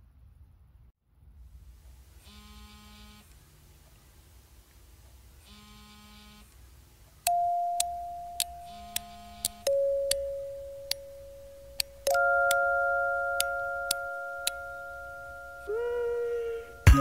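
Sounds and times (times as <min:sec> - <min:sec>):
clock-like ticks: 0:07.3 - 0:12.6
bell-like chime: 0:07.3 - 0:17.0
soft electronic tones: 0:07.3 - 0:17.0.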